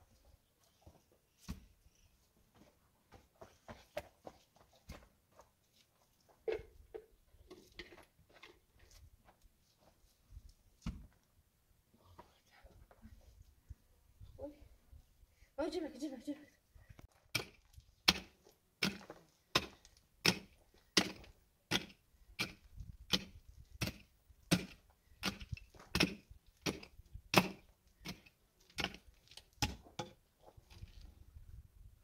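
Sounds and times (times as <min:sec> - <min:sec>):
hand pick striking stony earth: 0:17.3 - 0:30.2.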